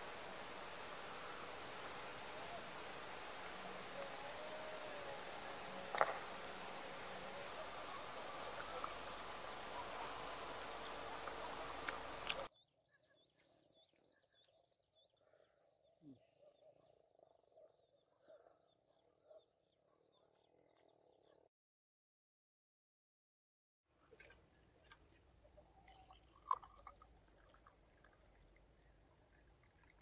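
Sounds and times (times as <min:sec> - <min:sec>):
frogs calling: 0:00.0 - 0:12.5
insects chirping: 0:00.0 - 0:12.5, 0:24.0 - 0:30.0
outdoor field hiss: 0:00.0 - 0:12.5, 0:24.0 - 0:30.0.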